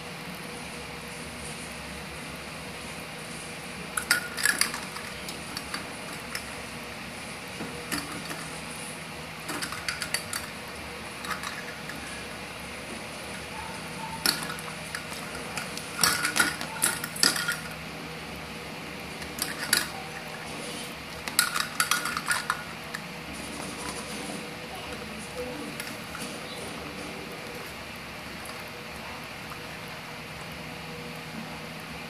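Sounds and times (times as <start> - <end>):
steady low hum: 0.0 - 32.0.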